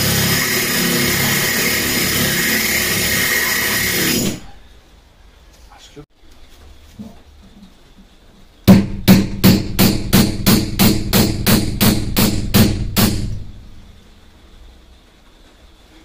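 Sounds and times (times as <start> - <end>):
hammer striking with ring: 8.7 - 13.6.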